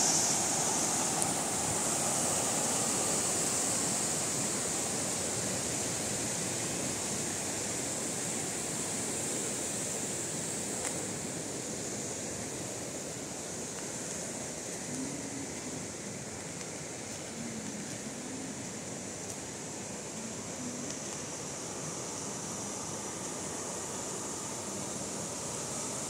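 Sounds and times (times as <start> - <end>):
water rushing over rapids: 0.0 - 26.0.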